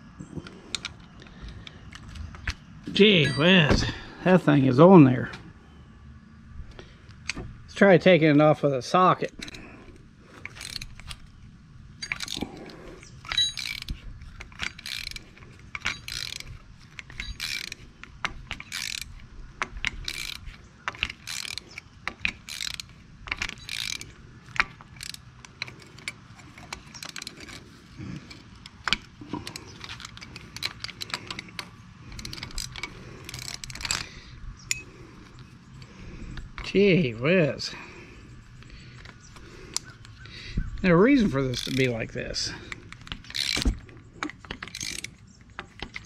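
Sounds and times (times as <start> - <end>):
socket ratchet clicking: 12.0 - 36.7, 42.7 - 46.0.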